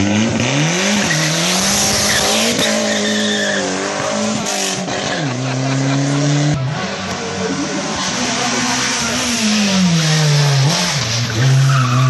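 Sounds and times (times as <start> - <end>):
tyres screeching on asphalt: 0.0 - 12.0
rally car engine running hard: 3.7 - 11.8.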